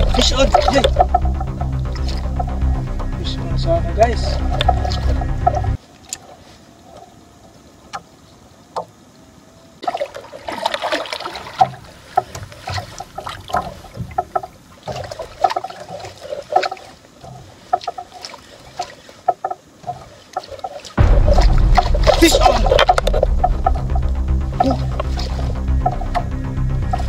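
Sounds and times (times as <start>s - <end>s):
sharp clicks and knocks: 0.0s - 2.7s, 4.4s - 5.8s, 21.2s - 27.0s
water lapping against boat hull: 0.0s - 27.0s.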